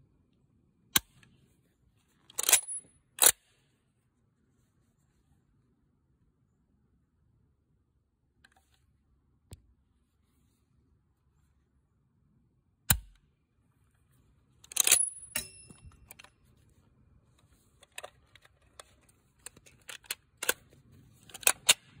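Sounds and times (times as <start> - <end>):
metallic ring: 14.8 - 16.1
rifle action clicking: 17.9 - 20.7, 21.3 - 22.0.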